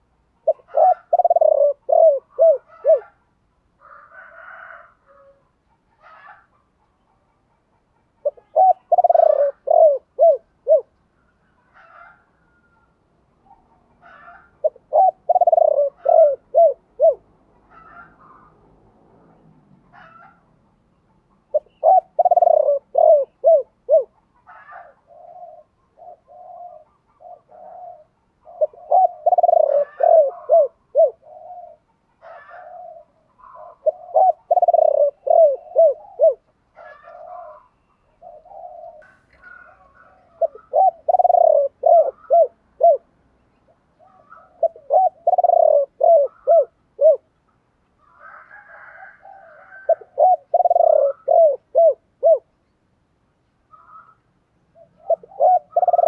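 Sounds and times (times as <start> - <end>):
dove cooing: 0.0 - 3.3, 8.2 - 18.6, 21.4 - 47.4, 48.0 - 52.6, 53.7 - 56.0.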